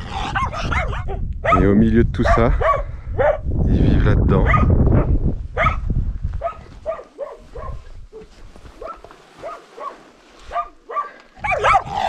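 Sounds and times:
dog barking: 0.4s - 3.4s, 4.4s - 5.8s, 6.4s - 12.0s.

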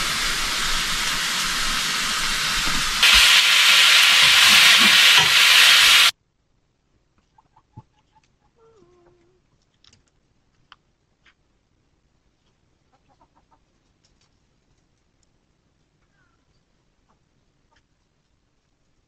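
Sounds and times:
steak sizzling in a frying pan: 0.0s - 6.1s.

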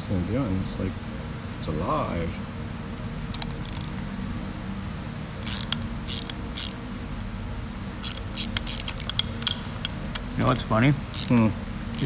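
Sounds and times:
socket ratchet clicking: 2.9s - 4.0s, 5.4s - 6.8s, 8.0s - 12.0s.

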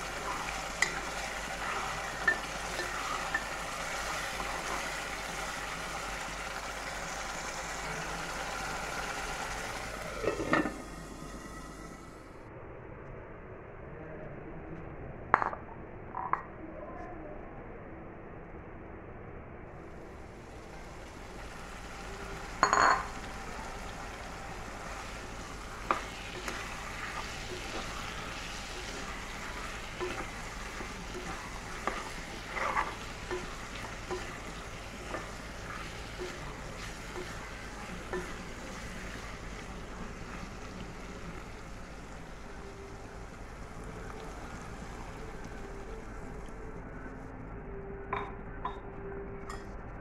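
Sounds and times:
food sizzling in oil: 0.0s - 12.1s, 20.2s - 46.4s
spatula scraping pan: 25.9s - 38.5s.

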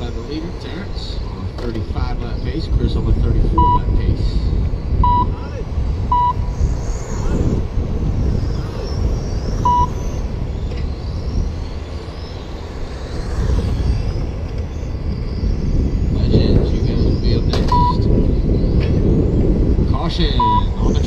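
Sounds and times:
rc car motors whining: 0.0s - 21.0s
steady low rumble: 0.0s - 21.0s
short electronic beep: 3.6s - 3.9s, 5.0s - 5.4s, 6.1s - 6.4s, 9.6s - 10.0s, 17.7s - 18.0s, 20.4s - 20.7s.

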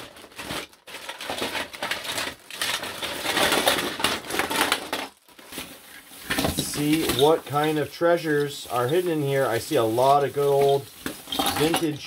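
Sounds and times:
toy cars clattering in a box: 0.3s - 5.6s, 9.6s - 12.0s.

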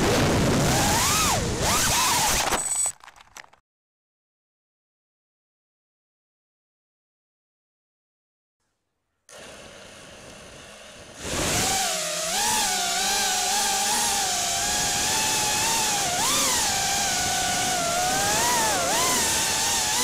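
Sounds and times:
quadcopter motor whine: 0.0s - 2.8s, 9.3s - 20.0s.

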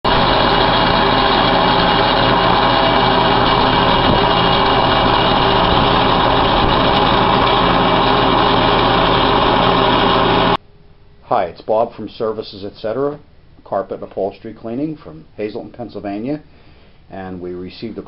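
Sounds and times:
carpet cleaning machine droning: 0.1s - 10.6s.

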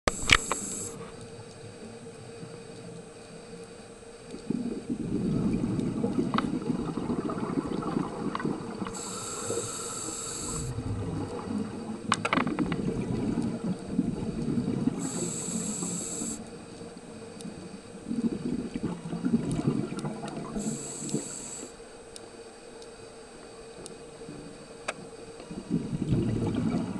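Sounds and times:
hissing regulator inhales: 0.2s - 1.0s, 8.9s - 10.8s, 15.0s - 16.5s, 20.6s - 21.8s
bubbling exhales underwater: 4.4s - 16.4s, 18.0s - 21.4s, 25.5s - 26.9s.

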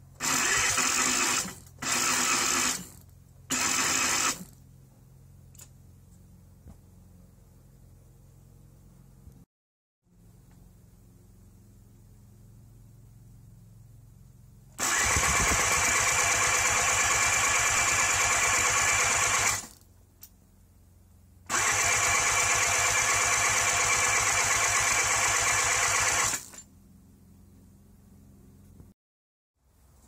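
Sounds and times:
electric starter cranking engine: 0.2s - 4.6s, 14.8s - 19.8s, 21.5s - 26.7s.

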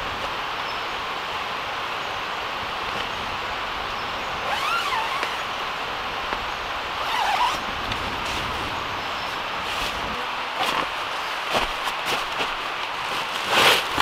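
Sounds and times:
rainforest background hiss: 0.0s - 14.0s
tent fabric rustling: 4.3s - 5.8s, 6.9s - 14.0s.

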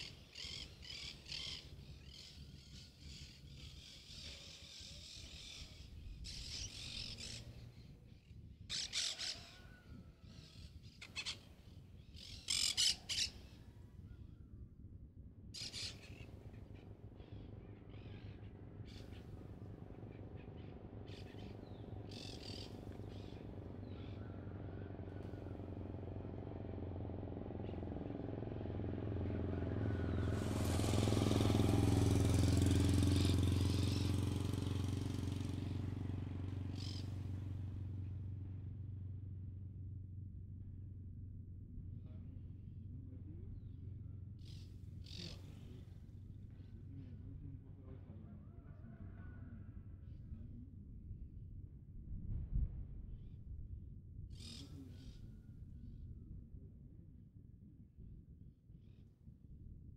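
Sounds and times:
birds calling: 0.0s - 14.3s, 15.6s - 26.0s, 30.1s - 38.2s, 44.4s - 46.7s, 54.3s - 55.3s
vehicle engine hum: 0.0s - 59.9s.

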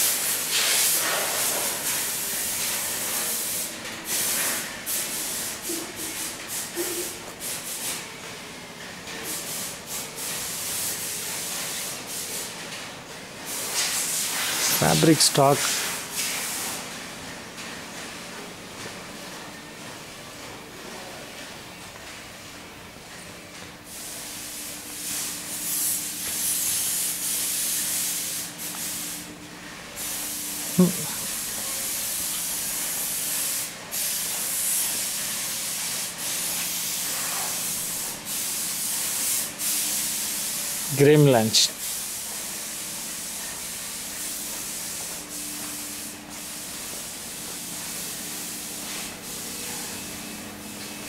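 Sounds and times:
rough hissing noise: 0.0s - 8.0s, 13.5s - 16.9s, 23.9s - 50.0s.

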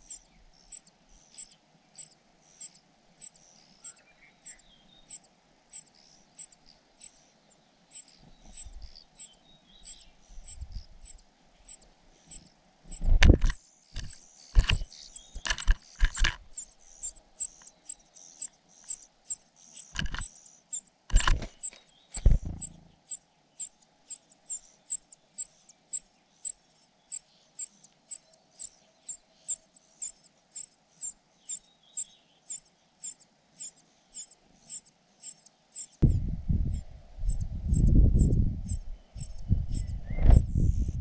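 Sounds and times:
nestlings high-pitched begging calls: 0.0s - 13.1s, 13.8s - 41.0s
knocks and rustles: 13.0s - 16.5s, 19.9s - 20.3s, 21.1s - 22.8s.

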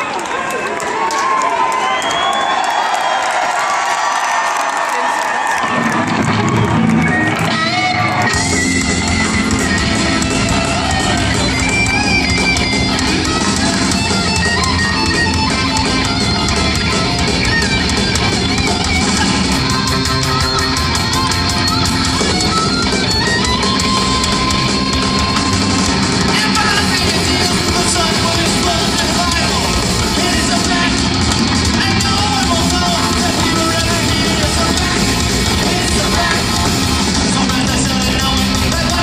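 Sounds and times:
live rock band playing: 5.7s - 39.0s.

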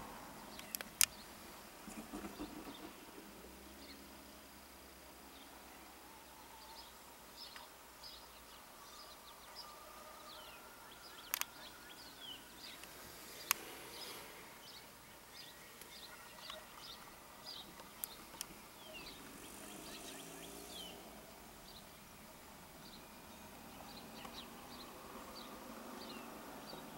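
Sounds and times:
small birds chirping: 0.0s - 26.9s
sharp clicks: 0.5s - 1.2s, 11.3s - 11.5s.

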